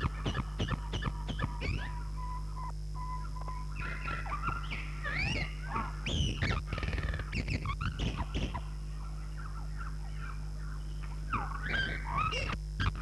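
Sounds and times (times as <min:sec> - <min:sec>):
fast rattling animal call: 0:00.0 - 0:02.7, 0:03.5 - 0:08.7, 0:11.3 - 0:13.0
animal chirping and squealing calls: 0:00.0 - 0:13.0
steady low hum: 0:00.0 - 0:13.0.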